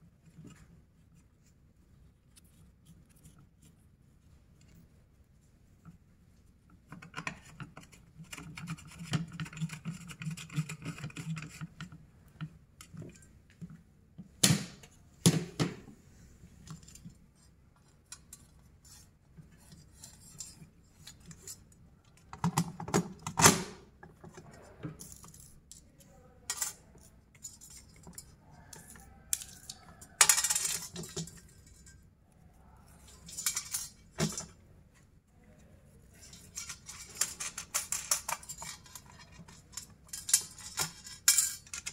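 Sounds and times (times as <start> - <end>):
small metal parts clinking: 25.0 - 32.1, 33.0 - 34.5, 36.2 - 41.9.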